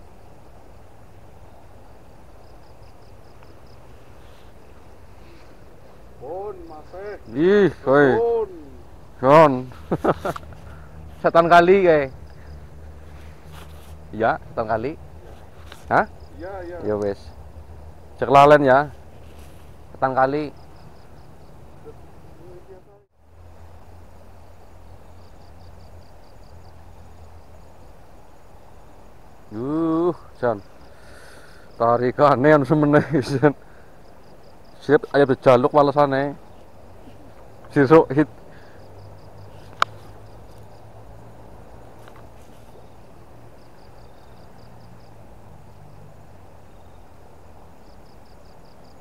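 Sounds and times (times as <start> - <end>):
insect chirping: 0.0 - 49.0
riverside hiss and rumble: 0.0 - 49.0.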